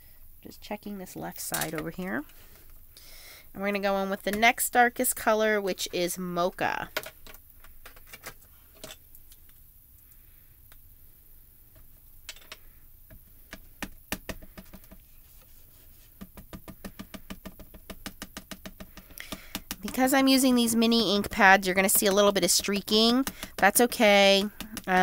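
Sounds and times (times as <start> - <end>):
ink pad tapping rubber stamp: 13.5 - 15.0, 16.2 - 25.0.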